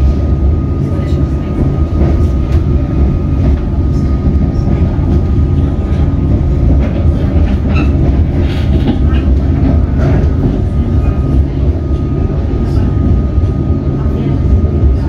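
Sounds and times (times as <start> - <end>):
train rumble inside carriage: 0.0 - 15.0
train wheels clacking on track: 1.4 - 13.6.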